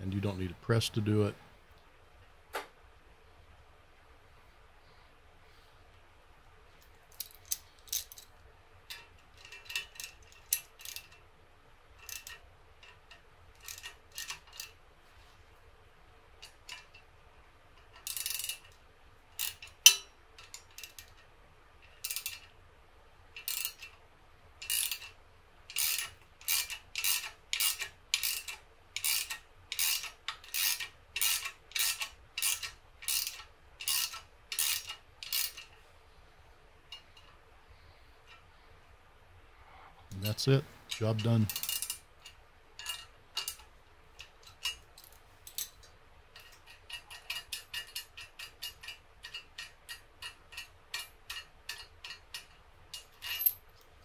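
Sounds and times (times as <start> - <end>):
metal tool parts clinking: 7.1 - 8.3, 8.9 - 11.2, 12.0 - 14.8, 17.8 - 18.8, 19.4 - 21.2, 21.8 - 22.5, 24.6 - 35.8, 40.2 - 53.9
ratchet wrench clicking: 8.9 - 11.2, 12.0 - 14.8, 17.8 - 18.8, 19.4 - 21.2, 21.9 - 22.5, 23.4 - 24.0, 24.6 - 35.8, 40.9 - 45.7, 46.4 - 53.6.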